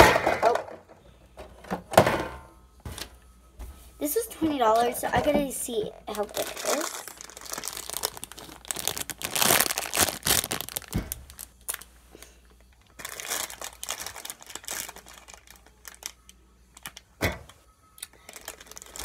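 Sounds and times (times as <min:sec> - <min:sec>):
plastic bag crinkling: 0:06.0 - 0:17.0, 0:18.0 - 0:19.0.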